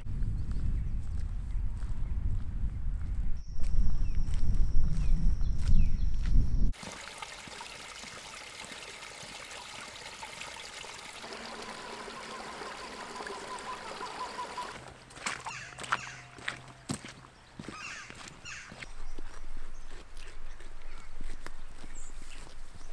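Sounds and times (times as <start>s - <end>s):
footsteps on stony track: 0.2s - 6.5s, 14.8s - 22.9s
stream trickling: 6.7s - 15.6s.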